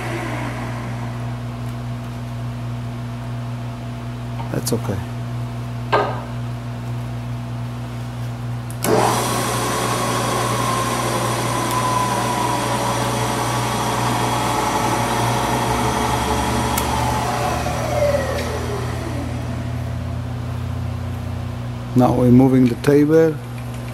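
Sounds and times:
mill spindle whining: 0.0 - 1.9, 8.8 - 20.7.

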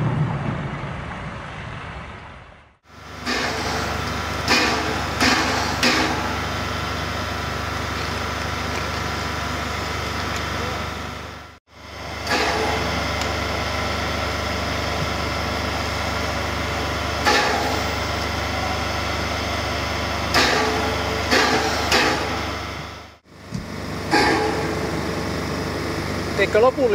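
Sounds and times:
steam locomotive hissing: 3.0 - 11.3.

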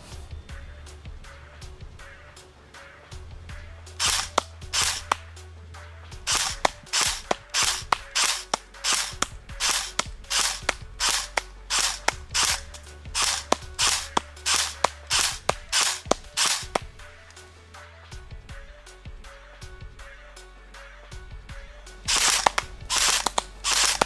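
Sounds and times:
airsoft rifle single shots: 4.0 - 5.2, 6.3 - 16.9, 22.1 - 24.0.

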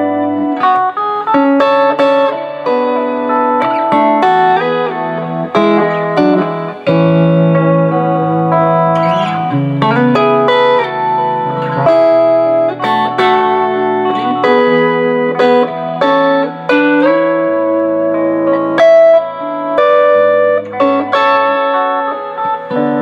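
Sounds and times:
electric guitar playing: 0.0 - 23.0.

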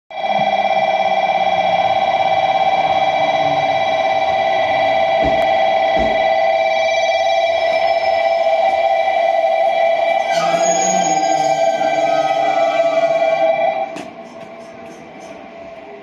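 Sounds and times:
high-pitched electronic tone: 0.1 - 14.0.

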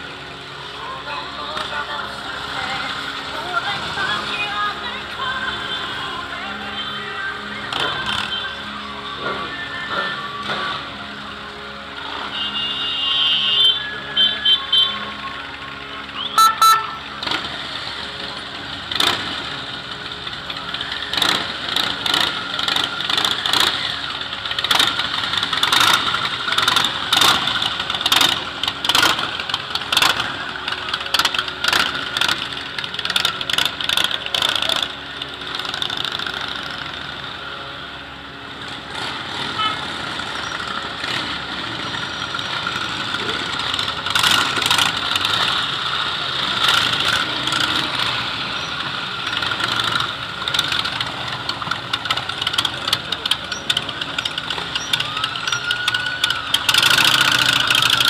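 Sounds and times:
motorcycle engines revving: 0.0 - 58.0.

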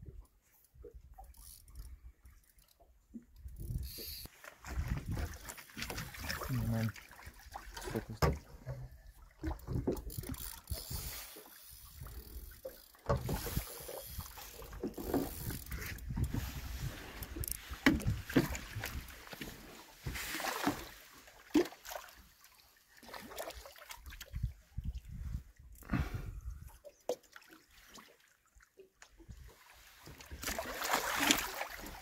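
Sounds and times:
water sloshing: 4.0 - 24.3, 29.3 - 32.0
knocks and handling noise on boat: 7.8 - 8.9, 9.5 - 10.4, 13.0 - 13.6, 14.7 - 20.9.

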